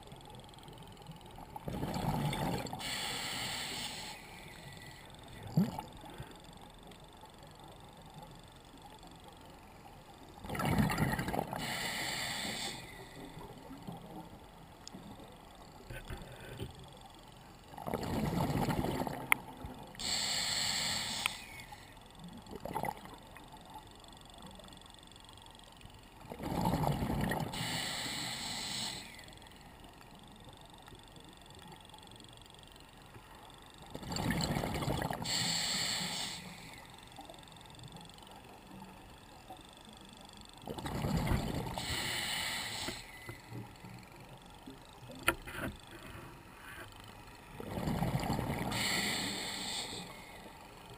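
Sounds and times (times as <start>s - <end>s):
exhaled bubbles rumbling underwater: 1.4s - 2.8s, 10.4s - 11.8s, 17.7s - 19.7s, 22.4s - 23.6s, 26.2s - 27.6s, 33.9s - 35.3s, 40.7s - 42.1s, 47.5s - 49.2s
regulator hissing on inhale: 2.8s - 5.4s, 11.5s - 13.8s, 20.0s - 22.1s, 27.5s - 29.6s, 35.2s - 37.2s, 41.6s - 44.1s, 48.6s - 50.9s.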